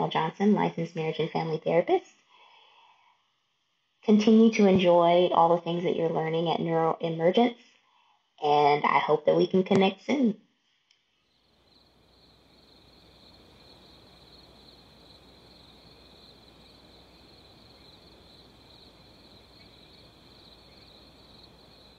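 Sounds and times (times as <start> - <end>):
insect chorus chirring: 11.3 - 21.9.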